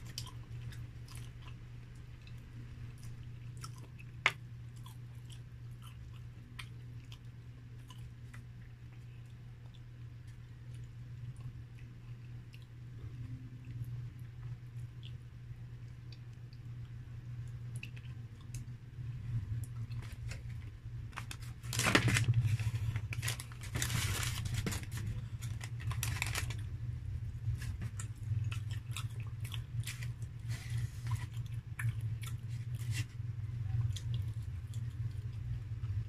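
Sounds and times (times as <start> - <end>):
mouth clicks and chewing: 0.0 - 15.3, 15.9 - 18.8, 27.5 - 32.9
steady low hum: 0.0 - 36.0
paper wrapper tearing and rustling: 21.1 - 26.7.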